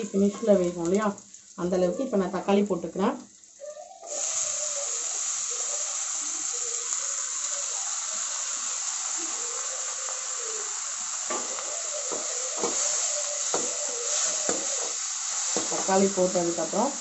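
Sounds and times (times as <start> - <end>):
vegetables sizzling in hot oil: 0.0 - 17.0.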